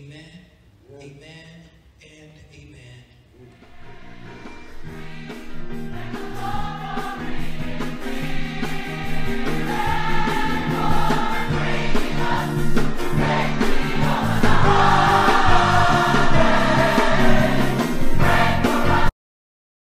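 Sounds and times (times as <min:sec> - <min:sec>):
gospel choir singing: 0:03.4 - 0:19.1
instrumental backing music: 0:03.4 - 0:19.1.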